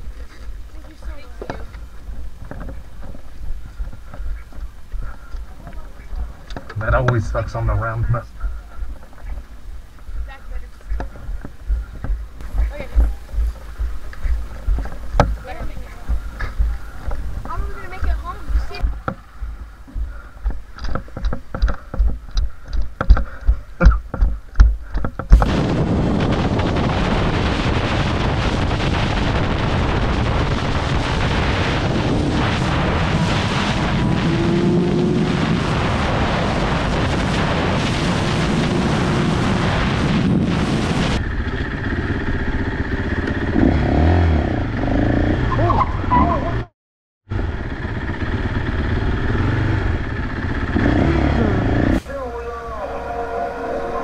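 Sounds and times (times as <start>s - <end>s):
dirt bike engine running: 0.0s - 45.7s, 47.3s - 54.0s
wind rush at highway speed: 0.0s - 46.6s
rhythmic thumps: 1.0s - 26.7s
motorcycle engine: 31.6s - 35.8s, 40.3s - 46.7s, 47.3s - 54.0s.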